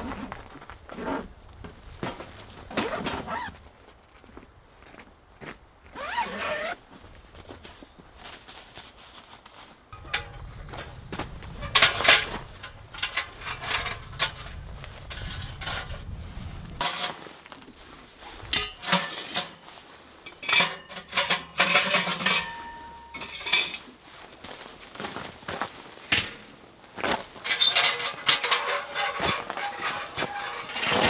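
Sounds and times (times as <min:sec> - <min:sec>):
metallic ring: 0:10.0 - 0:16.0, 0:20.3 - 0:23.9, 0:27.5 - 0:31.0
metal pipes clinking and clanking: 0:10.0 - 0:16.1, 0:16.7 - 0:17.3, 0:18.4 - 0:24.0, 0:26.1 - 0:26.5, 0:27.3 - 0:31.0.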